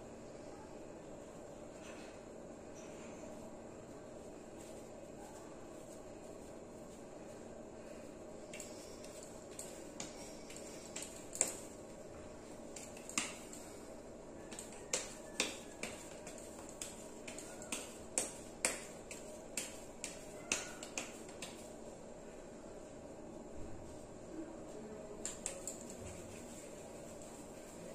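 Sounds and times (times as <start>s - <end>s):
faint background hum: 0.0s - 27.9s
hands patting dough: 3.3s - 22.2s, 25.2s - 27.9s.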